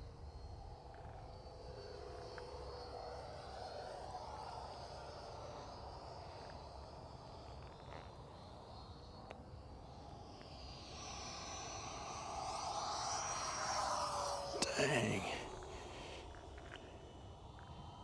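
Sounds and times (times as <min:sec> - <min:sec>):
model jet whining past: 0:10.0 - 0:16.5.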